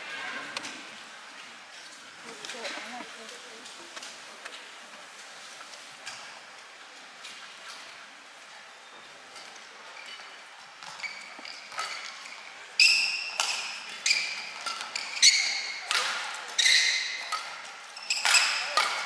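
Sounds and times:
shuttlecock hit by rackets: 0:18.2 - 0:19.0.

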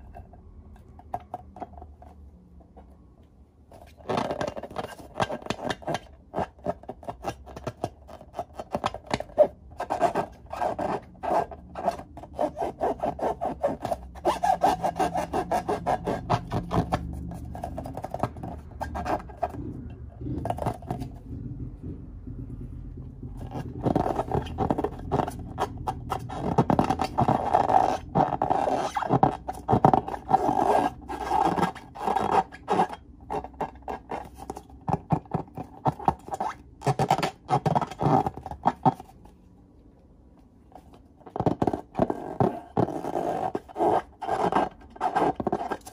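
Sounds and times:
balloons rubbed between hands: 0:23.4 - 0:33.4.

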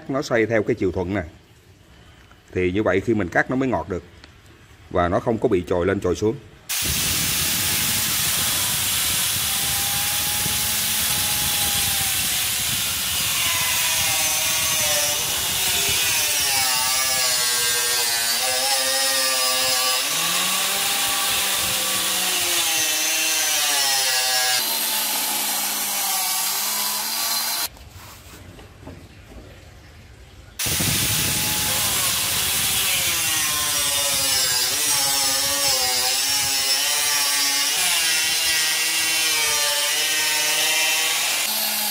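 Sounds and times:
angle grinder cutting plastic pipe: 0:06.7 - 0:27.7, 0:30.6 - 0:41.9.

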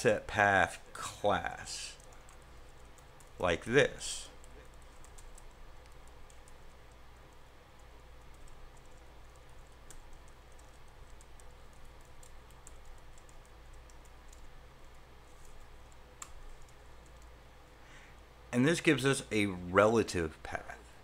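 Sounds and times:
low steady hum: 0:00.0 - 0:21.0
keyboard typing: 0:02.0 - 0:17.4.

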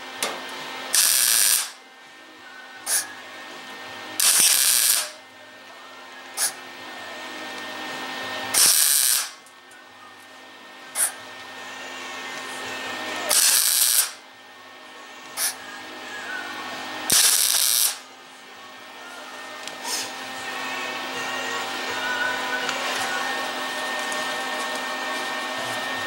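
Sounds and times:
welder bursts: 0:00.9 - 0:01.8, 0:02.9 - 0:03.1, 0:04.2 - 0:05.2, 0:08.5 - 0:09.5, 0:13.3 - 0:14.2, 0:17.0 - 0:18.1
sharp snap: 0:17.1 - 0:18.0.

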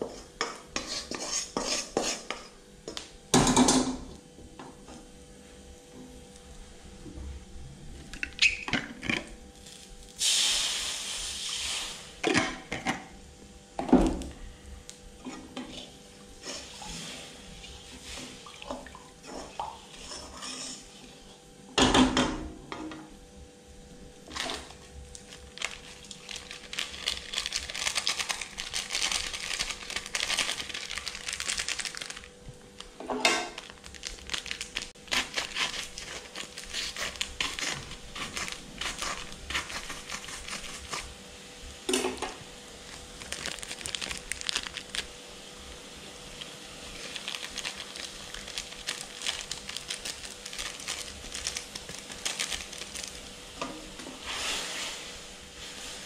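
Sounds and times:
faint steady hum: 0:00.0 - 0:54.4
cooking hiss: 0:10.0 - 0:12.7, 0:34.5 - 0:56.0.

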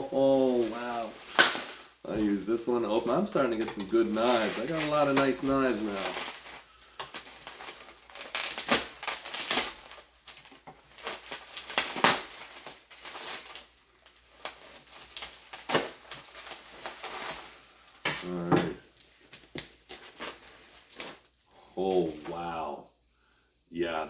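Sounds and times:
packaging crinkling and rustling: 0:00.0 - 0:22.4.

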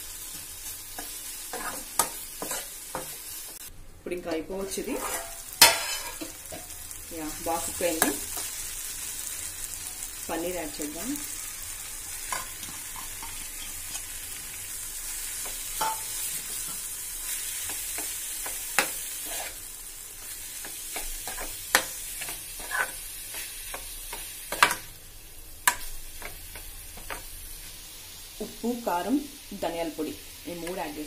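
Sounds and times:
food sizzling in frying pan: 0:00.0 - 0:03.7, 0:04.5 - 0:31.0
metal spoon scraping and clinking: 0:05.0 - 0:06.7.

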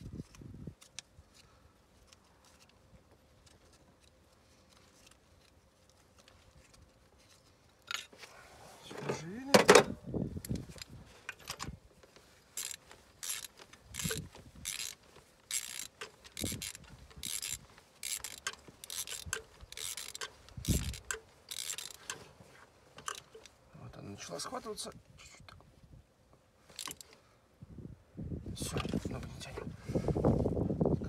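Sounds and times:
ratchet wrench clicking: 0:12.6 - 0:22.2.

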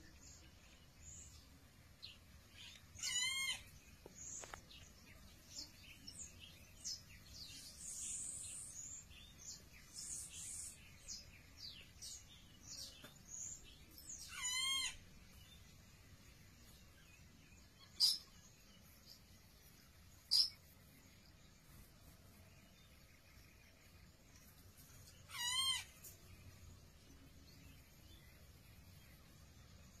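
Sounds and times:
birds chirping and whistling: 0:02.6 - 0:04.6, 0:06.9 - 0:15.0, 0:17.8 - 0:18.4, 0:20.2 - 0:20.6, 0:25.1 - 0:26.2.

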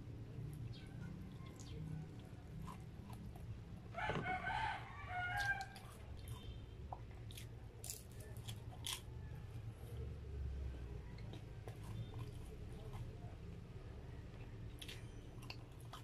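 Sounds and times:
clicks and smacks of eating: 0:00.3 - 0:04.4, 0:05.2 - 0:10.0, 0:11.0 - 0:16.0
rooster crowing: 0:03.9 - 0:05.9.

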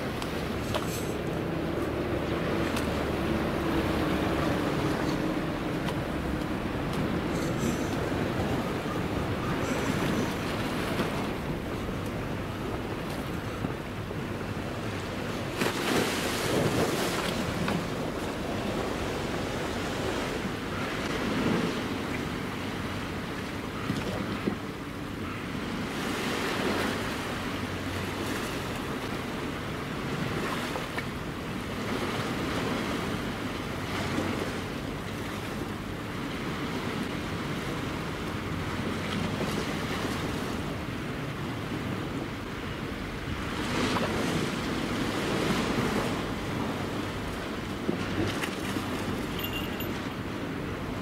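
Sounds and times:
wind buffeting microphone: 0:00.0 - 0:23.0
waves washing against breakwater: 0:00.0 - 0:51.0.

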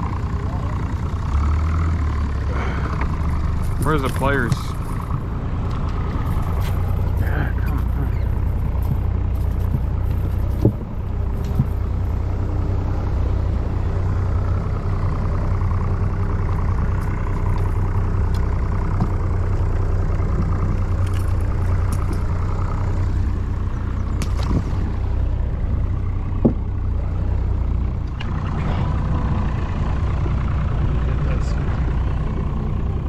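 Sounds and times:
boat motor humming: 0:00.0 - 0:33.0.

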